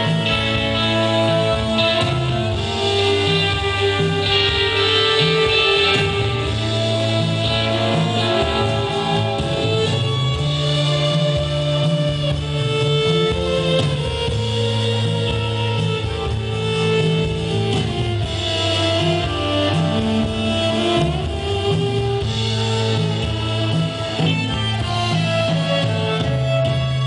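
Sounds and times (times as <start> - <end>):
bass line: 0.0 - 27.0.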